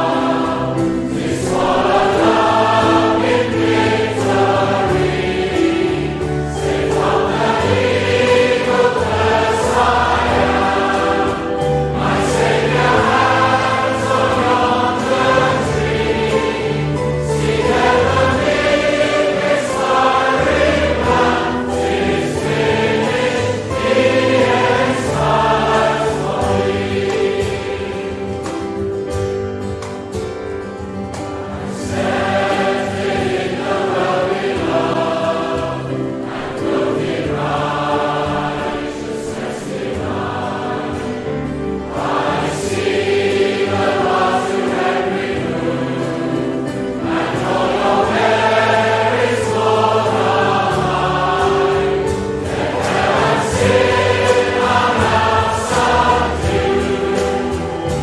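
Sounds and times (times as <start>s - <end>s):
group singing a hymn: 0.0s - 29.8s, 30.6s - 58.0s.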